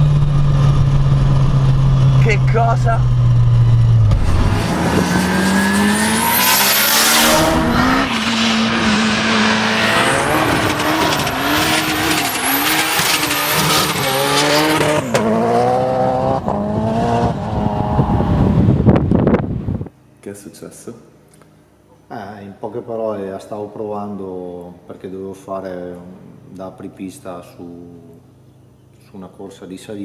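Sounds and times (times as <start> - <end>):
car engine revving: 0.0 - 19.9.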